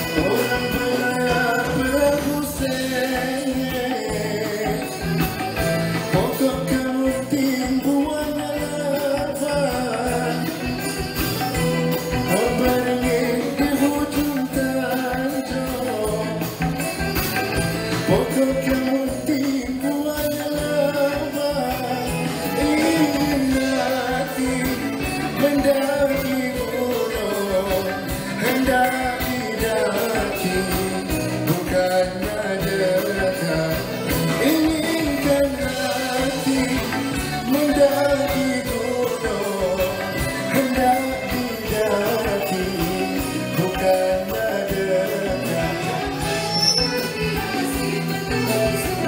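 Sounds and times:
live band playing pop music: 0.0s - 49.0s
man singing: 0.0s - 49.0s.

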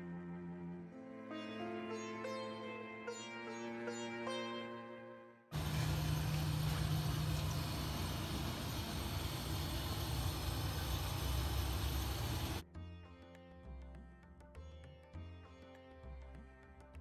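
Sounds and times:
gas burner hissing: 5.6s - 12.6s.

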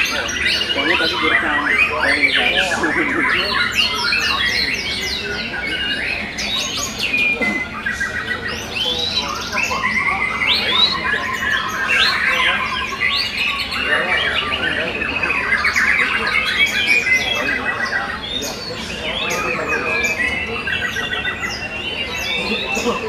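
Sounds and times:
birds singing whistles and trills: 0.0s - 23.0s.

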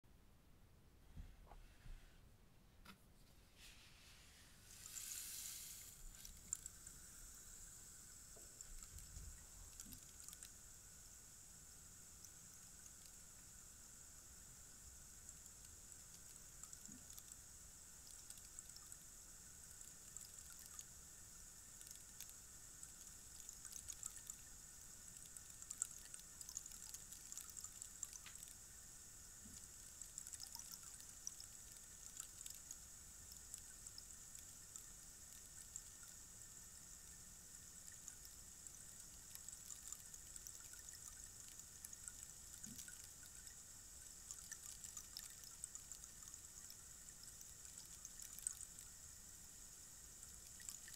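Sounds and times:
rainstick trickling: 4.6s - 13.7s, 14.8s - 49.4s, 50.2s - 50.9s.

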